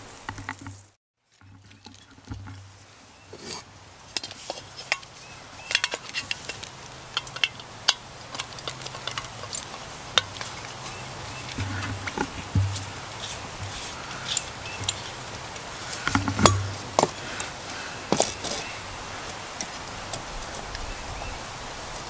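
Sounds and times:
canister knocking on wooden planks: 11.5s - 15.1s, 15.9s - 17.2s.

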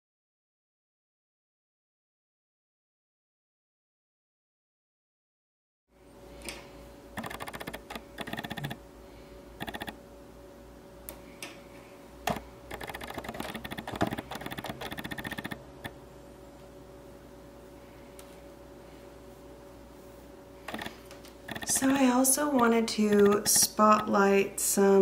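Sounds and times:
faint steady hum: 5.9s - 25.0s
knitting needles clicking: 7.2s - 8.8s, 9.6s - 9.9s, 12.3s - 15.6s, 20.7s - 24.1s.

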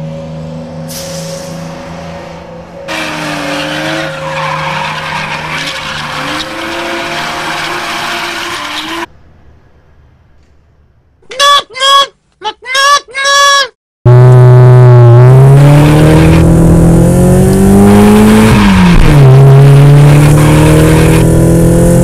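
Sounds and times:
tyres skidding: 0.6s - 9.2s
car engine revving: 1.6s - 9.1s, 14.1s - 22.0s.

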